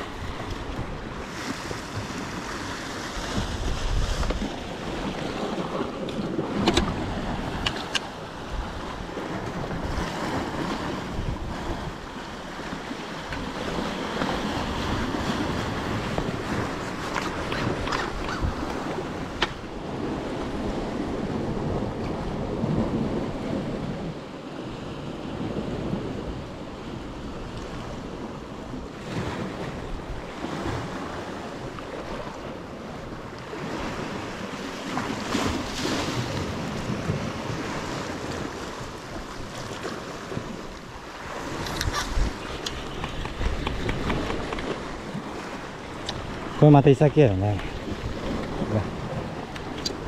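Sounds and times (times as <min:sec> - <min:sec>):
waves washing on rocks: 0:00.0 - 0:50.0
wind buffeting microphone: 0:00.0 - 0:50.0
sharp click: 0:49.5 - 0:50.0.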